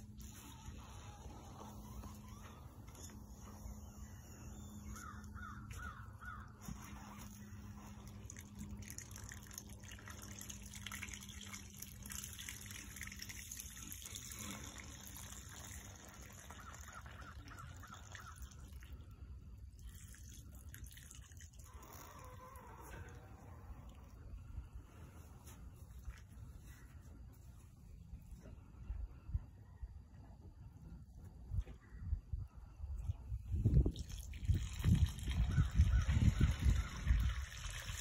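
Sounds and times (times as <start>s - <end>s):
crow cawing: 4.8s - 6.5s
fluid dripping onto straw: 7.2s - 18.8s.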